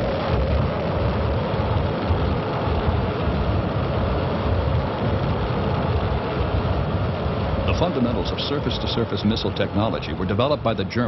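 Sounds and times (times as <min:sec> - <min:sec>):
rocket engine rumble: 0:00.0 - 0:11.0.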